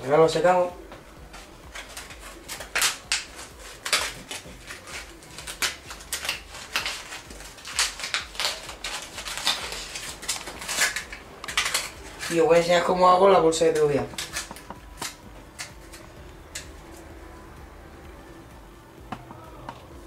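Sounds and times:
plastic bottle crinkling in cloth: 1.3 - 12.9.

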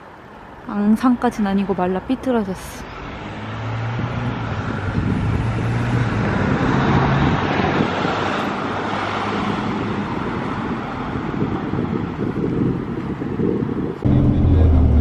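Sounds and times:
cars driving past: 2.6 - 12.4, 14.0 - 15.0.

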